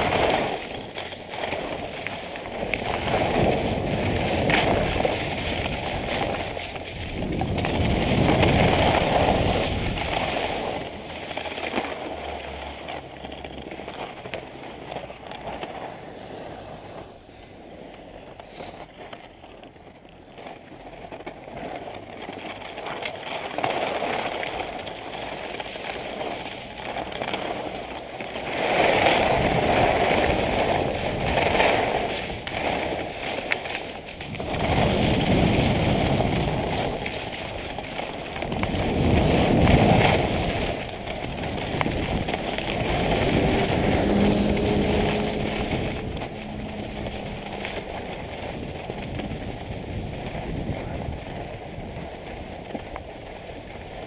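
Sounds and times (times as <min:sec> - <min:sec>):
wind noise on microphone: 0:00.0 - 0:13.3, 0:22.8 - 0:54.0
skis scraping over snow: 0:00.0 - 0:54.0.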